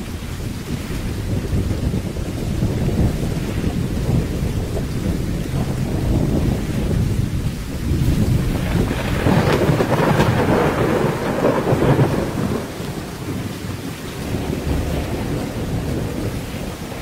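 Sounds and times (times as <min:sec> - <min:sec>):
rain: 0:00.0 - 0:17.0
thunder rolling: 0:00.0 - 0:17.0
sharp thunder cracks: 0:01.2 - 0:13.5.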